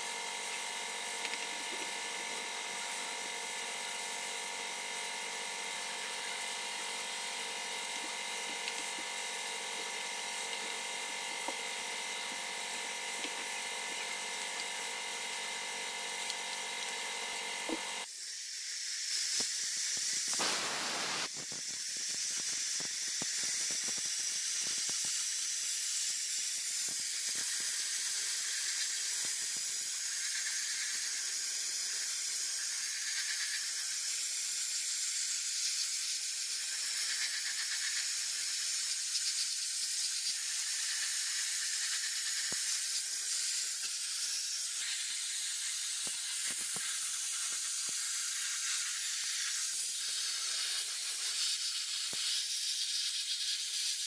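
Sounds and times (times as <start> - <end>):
mechanical hum with held tones: 0.0 - 52.4
sandblasting gun hiss: 17.7 - 54.0.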